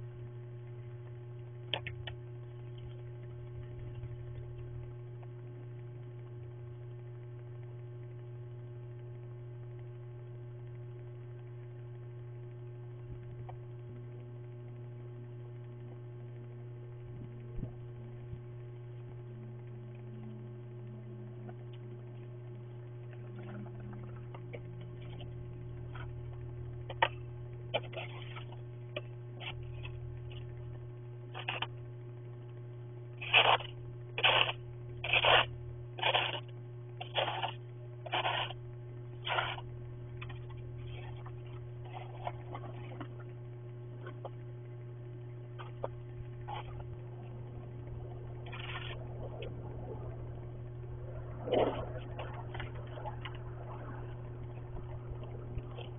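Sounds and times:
steady electrical hum: 0:00.0 - 0:55.9
snow shovel scraping: 0:34.2 - 0:36.4, 0:37.0 - 0:38.5.

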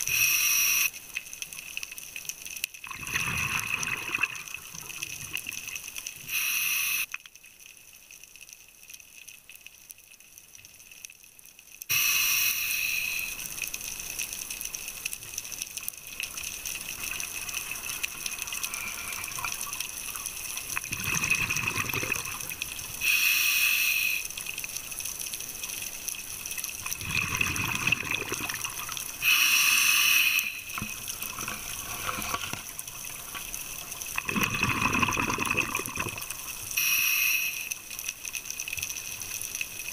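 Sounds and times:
steady underwater hiss: 0:00.0 - 0:02.4, 0:03.1 - 0:07.2, 0:11.9 - 0:39.9
diver's exhaled bubbles rushing: 0:20.9 - 0:22.4, 0:27.0 - 0:28.8, 0:34.2 - 0:36.3.

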